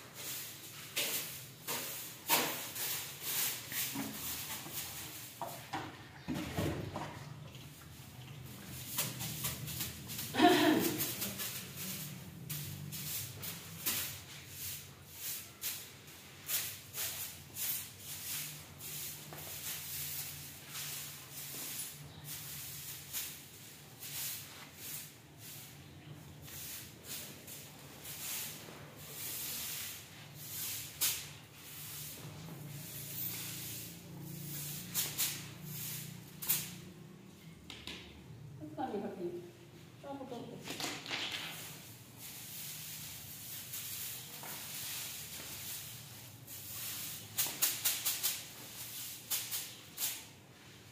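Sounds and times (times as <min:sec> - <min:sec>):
broom swishing on tile floor: 0:00.0 - 0:37.6, 0:38.7 - 0:50.9.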